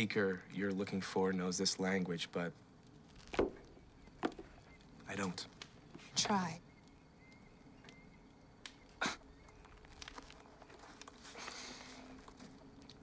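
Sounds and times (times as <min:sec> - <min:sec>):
book rustling open: 0:09.6 - 0:13.0.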